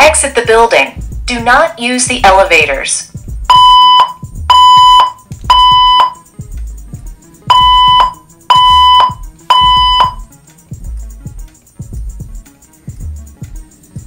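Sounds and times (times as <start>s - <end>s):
fire alarm tone bursts: 3.5s - 6.2s, 7.5s - 10.3s.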